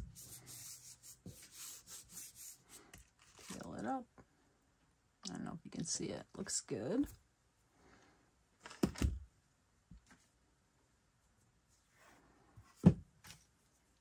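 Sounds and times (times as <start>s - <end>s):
thump and knock on tabletop: 12.8s - 13.0s.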